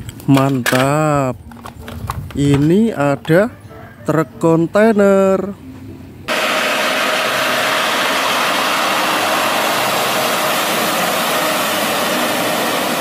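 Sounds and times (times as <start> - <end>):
spraying water rushing: 6.3 - 13.0
truck diesel engine running: 7.4 - 13.0.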